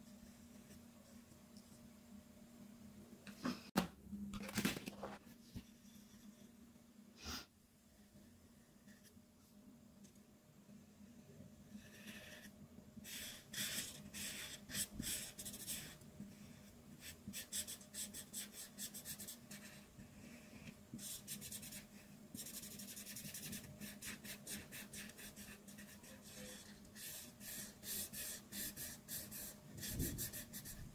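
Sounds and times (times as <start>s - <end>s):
marker scratching on paper: 13.1s - 16.0s, 21.0s - 30.9s.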